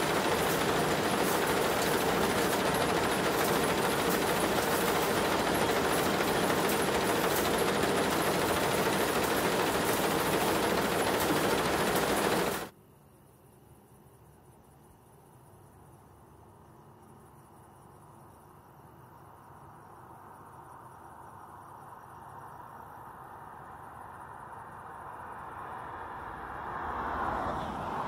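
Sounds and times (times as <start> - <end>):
machinery clattering: 0.0 - 12.7.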